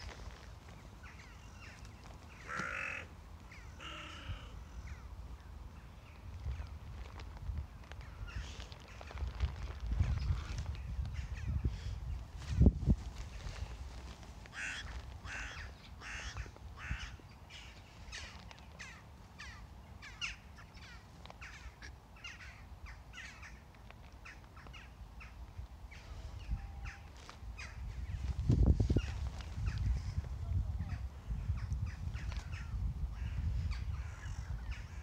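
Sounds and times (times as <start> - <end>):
crows cawing: 2.3 - 5.0, 14.5 - 22.6.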